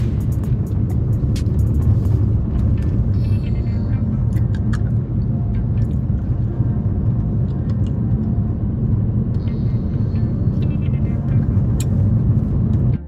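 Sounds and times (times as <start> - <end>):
car road and engine rumble: 0.0 - 13.0.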